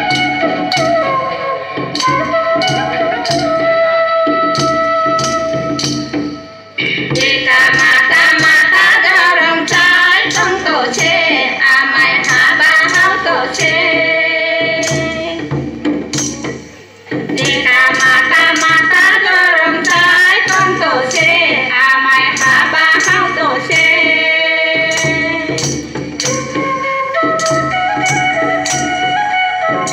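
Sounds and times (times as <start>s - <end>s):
hand drum beat: 1.8s - 3.7s, 4.4s - 29.9s
person singing: 6.8s - 15.4s, 17.4s - 25.7s.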